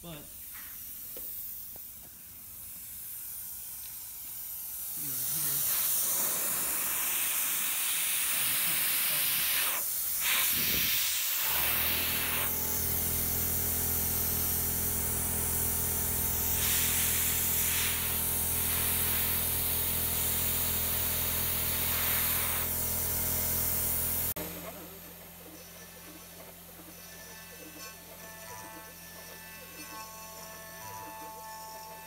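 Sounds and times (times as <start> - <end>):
compressed air hissing: 0.3 - 24.4
motor humming: 3.9 - 25.6.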